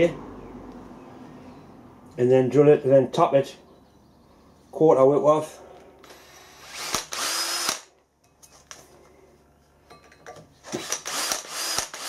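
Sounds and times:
cordless drill bursts: 6.0 - 7.9, 10.7 - 12.0.

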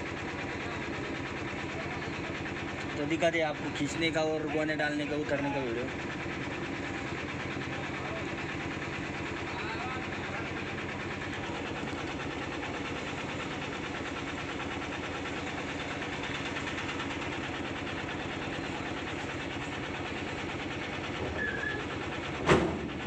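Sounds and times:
truck engine running: 0.0 - 23.0
loud knock: 22.4 - 23.0.

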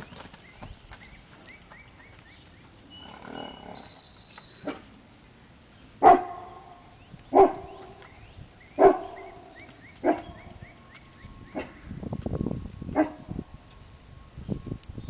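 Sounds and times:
dog barking: 6.0 - 6.6, 7.3 - 7.7, 8.8 - 9.2.

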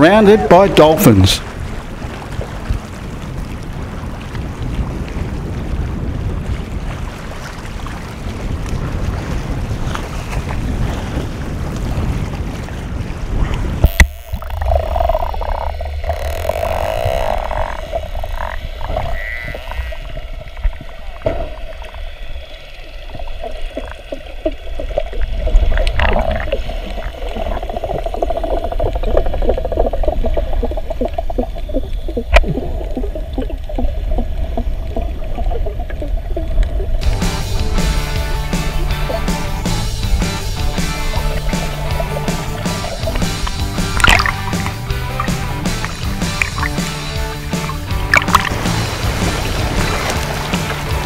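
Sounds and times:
low rumble of water: 0.0 - 51.0
dolphin clicks and buzzing pulses: 13.6 - 51.0
dolphin high call: 14.2 - 20.2.

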